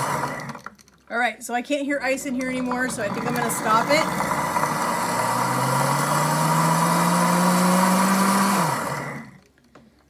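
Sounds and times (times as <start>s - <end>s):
blender motor running: 0.0s - 0.7s, 2.4s - 9.4s.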